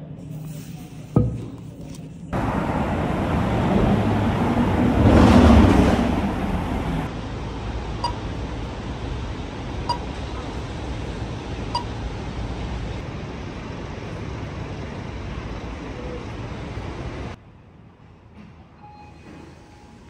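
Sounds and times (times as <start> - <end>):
steady low rumble: 2.3 - 17.4.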